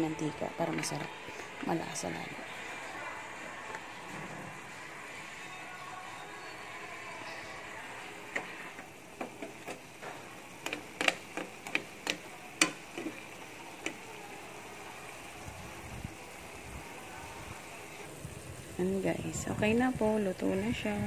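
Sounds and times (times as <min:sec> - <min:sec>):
broth bubbling with oil pops: 0:09.2 - 0:14.0.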